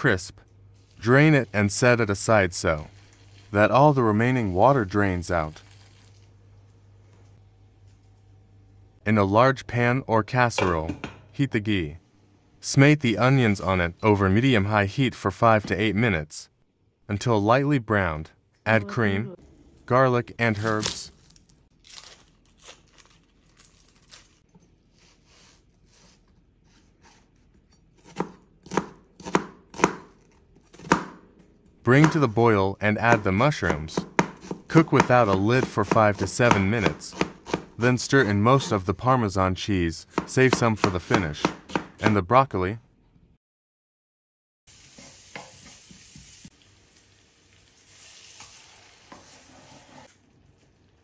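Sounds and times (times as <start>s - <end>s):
onion skin crinkling and tearing: 5.5s - 6.4s, 20.5s - 24.5s
knife chopping on cutting board: 28.0s - 31.2s, 33.1s - 38.7s, 40.1s - 42.2s
onions sizzling in a frying pan: 44.7s - 49.5s.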